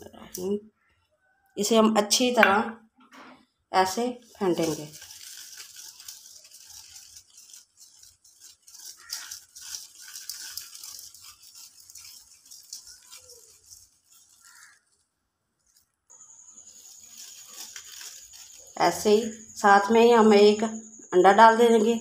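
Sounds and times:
whisk rattling against bowl: 3.9 - 15.0, 16.4 - 19.7.

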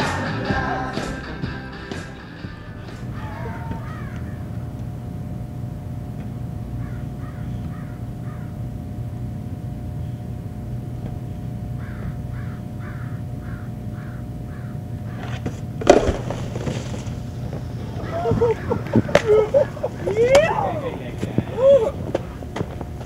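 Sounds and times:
steady background hum: 0.0 - 23.0
crows cawing: 2.6 - 4.9, 6.7 - 8.6, 11.8 - 15.5, 17.8 - 20.8.

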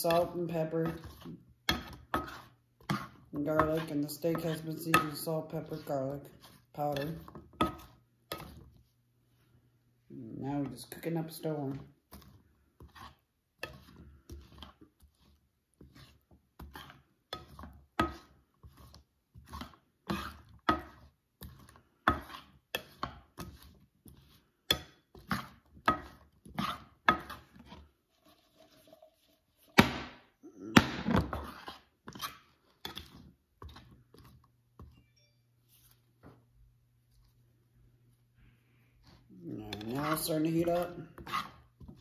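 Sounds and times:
spatula scraping frying pan: 0.0 - 8.8, 12.1 - 29.8, 31.2 - 34.4, 39.0 - 42.0.

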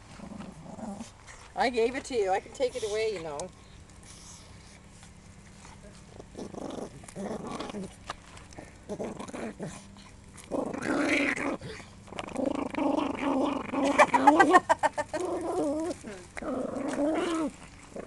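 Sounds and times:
dog growling and snarling: 0.0 - 1.5, 6.1 - 18.0
dog gnawing bone: 4.8 - 13.9, 15.1 - 18.0.

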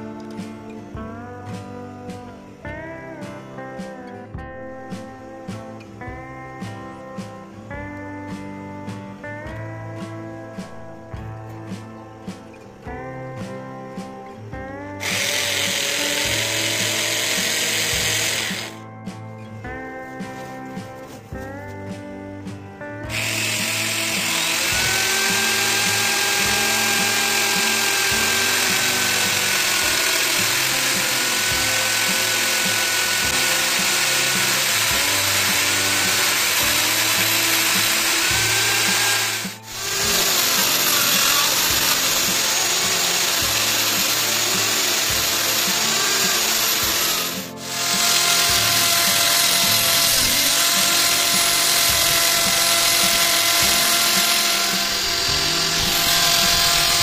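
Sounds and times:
die grinder grinding: 15.0 - 18.9, 23.0 - 57.0.

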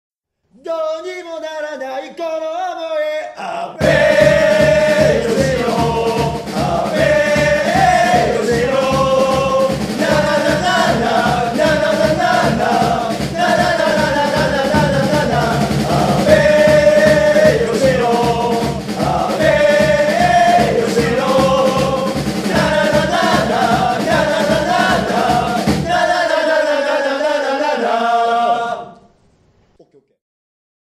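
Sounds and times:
men chanting in unison: 3.3 - 29.0
steady drumbeat: 3.8 - 28.0.

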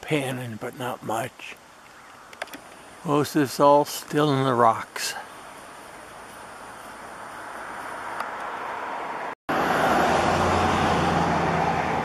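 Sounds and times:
road vehicle passing: 5.3 - 12.0.

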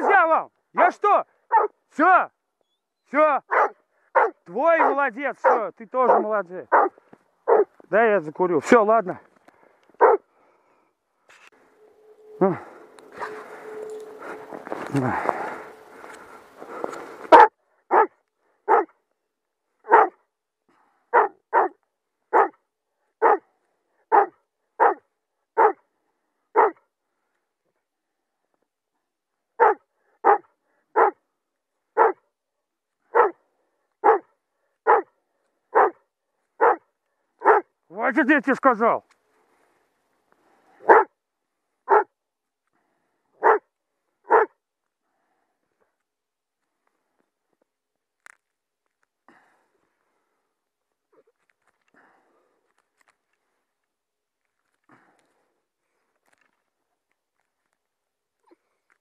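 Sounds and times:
dog barking: 1.5 - 1.8, 3.5 - 7.7, 10.0 - 10.2, 12.3 - 14.4, 17.3 - 19.0, 19.9 - 20.2, 21.1 - 22.6, 23.2 - 23.5, 24.1 - 25.0, 25.6 - 25.8, 26.5 - 26.8, 29.6 - 31.2, 32.0 - 32.2, 33.1 - 33.4, 34.0 - 35.1, 35.7 - 36.0, 36.6 - 37.7, 40.8 - 41.2, 41.9 - 42.1, 43.4 - 43.7, 44.3 - 44.6.

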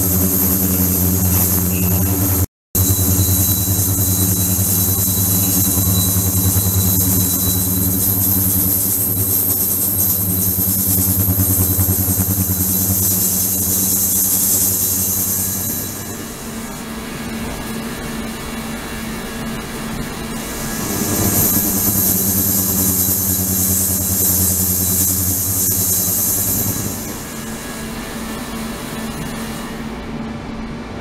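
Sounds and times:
steady low hum: 0.0 - 31.0
high hiss of cavitation: 20.4 - 27.9.

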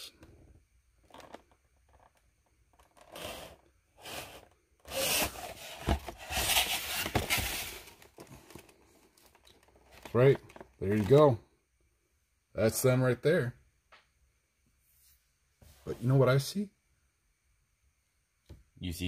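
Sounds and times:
cardboard scraping and sliding: 2.9 - 8.6
cardboard boxes rubbing: 3.0 - 8.2
boxes knocking when set down: 5.1 - 8.0.

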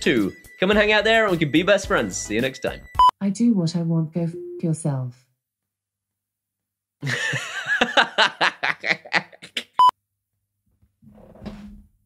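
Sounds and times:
censor bleep: 4.3 - 4.7
person laughing: 7.0 - 9.8.

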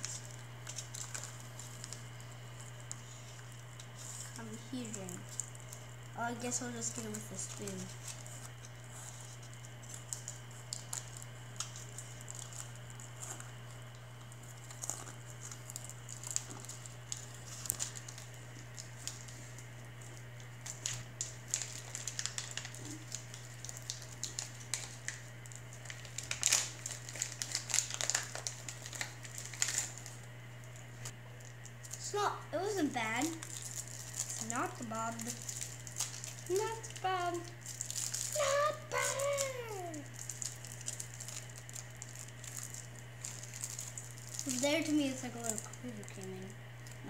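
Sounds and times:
cracker wrapping crinkling: 0.0 - 47.0
steady low hum: 0.0 - 47.0.

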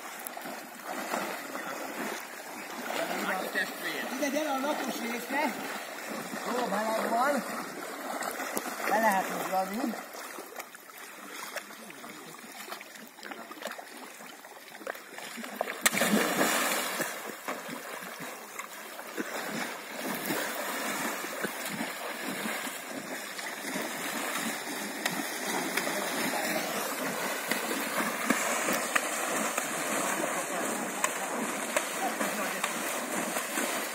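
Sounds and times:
person jumping into water: 0.0 - 3.2, 14.8 - 33.9
horses splashing through water: 0.0 - 33.9.

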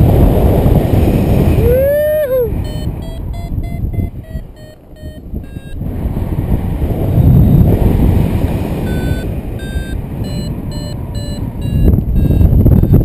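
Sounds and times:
wind buffeting microphone: 0.0 - 13.0
short electronic beeps: 2.6 - 5.8, 8.8 - 13.0.

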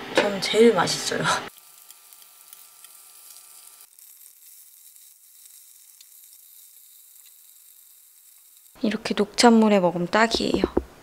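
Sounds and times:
food sizzling in a pan: 0.8 - 9.2.

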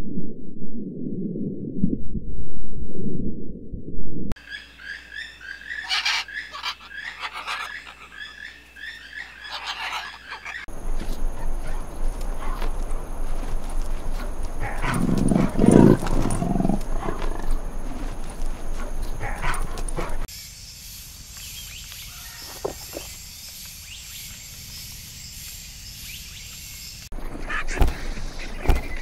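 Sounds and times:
leopards growling: 9.4 - 20.3
background hiss: 10.7 - 27.1.

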